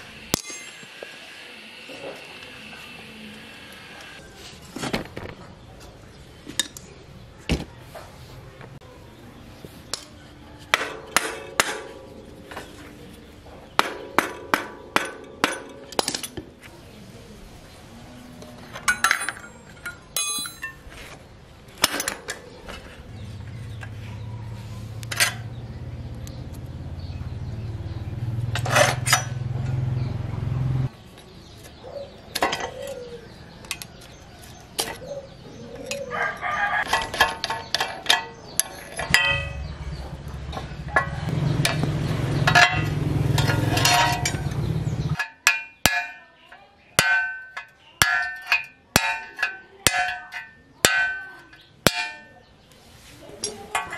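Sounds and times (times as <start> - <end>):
spanners and bicycle parts clinking: 0.0 - 1.0, 13.7 - 16.7, 18.6 - 21.2, 21.8 - 24.0, 25.0 - 25.8, 28.3 - 29.9, 31.6 - 35.1, 35.7 - 52.5, 53.3 - 53.9
rooster crowing: 36.0 - 36.9.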